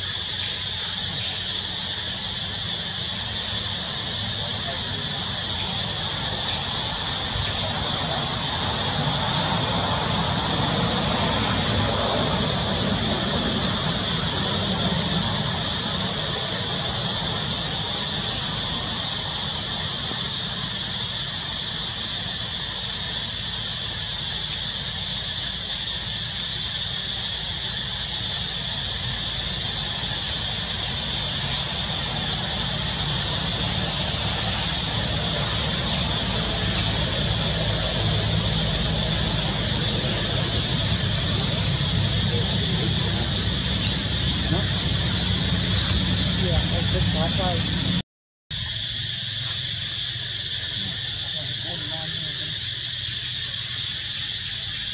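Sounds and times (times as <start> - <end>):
high-pitched drone: 34.1 - 48.0.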